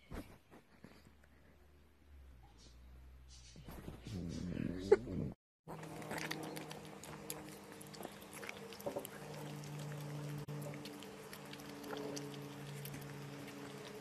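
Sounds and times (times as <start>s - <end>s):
dog licking and smacking: 5.8s - 14.0s.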